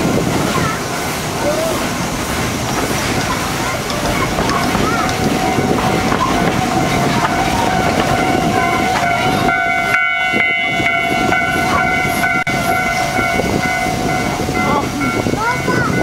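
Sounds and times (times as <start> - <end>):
train wheels running on track: 0.0 - 16.0.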